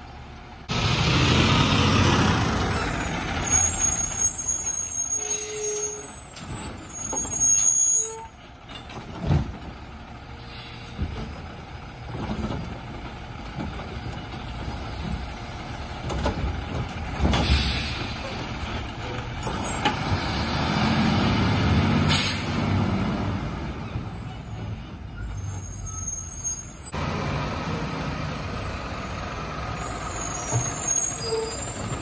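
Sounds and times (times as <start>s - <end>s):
garbage truck diesel engine: 0.0s - 32.0s
brake and air hiss: 10.3s - 11.4s, 17.2s - 20.2s, 21.9s - 22.8s
loud burst of air: 22.0s - 22.7s.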